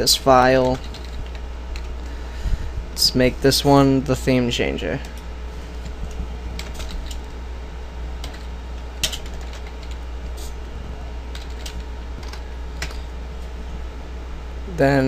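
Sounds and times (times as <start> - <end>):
steady low hum: 0.0 - 15.0
keyboard keys clicking: 0.6 - 1.9, 8.2 - 10.0.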